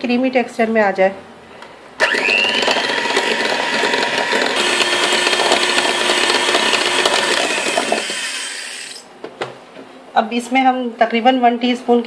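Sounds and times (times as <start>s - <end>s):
electric hand mixer whining: 2.0s - 9.0s.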